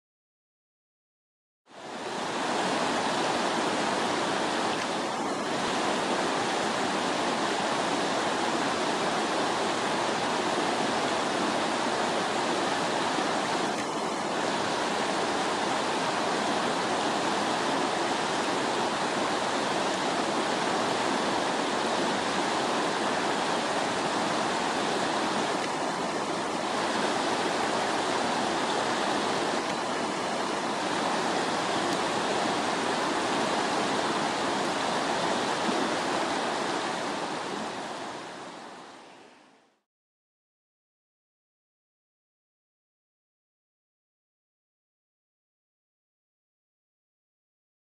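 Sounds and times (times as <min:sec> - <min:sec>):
river water rushing over rocks: 0:01.8 - 0:39.6.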